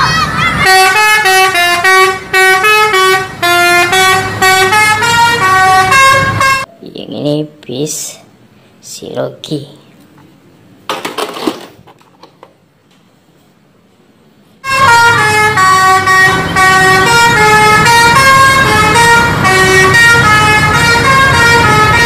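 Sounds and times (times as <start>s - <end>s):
bus engine rumble: 0.0s - 22.0s
musical bus horn: 0.5s - 6.7s, 14.6s - 22.0s
plastic toys clattering: 10.8s - 12.6s.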